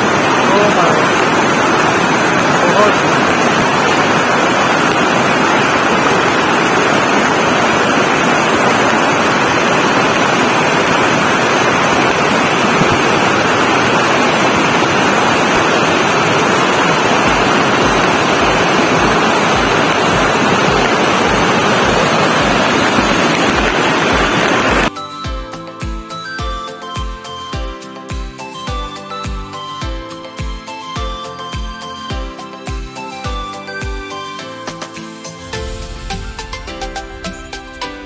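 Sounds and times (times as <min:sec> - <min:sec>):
stream rushing over rocks: 0:00.0 - 0:25.2, 0:26.2 - 0:38.0.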